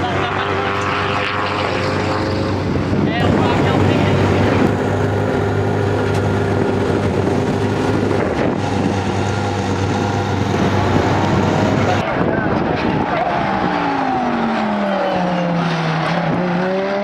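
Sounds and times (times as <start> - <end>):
race car engine idling: 1.8 - 15.2.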